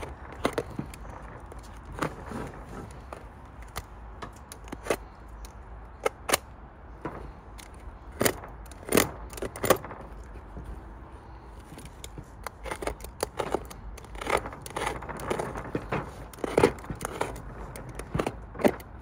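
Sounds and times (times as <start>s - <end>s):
knife cutting and scraping leather: 11.8s - 19.0s.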